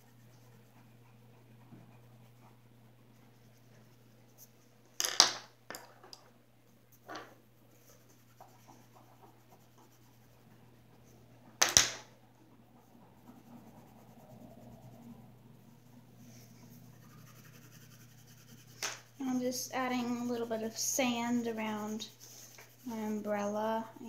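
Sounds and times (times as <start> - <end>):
pencil scratching on paper: 0.0 - 4.6, 7.7 - 11.2, 12.6 - 24.0
pencils clattering on wooden table: 5.0 - 6.3.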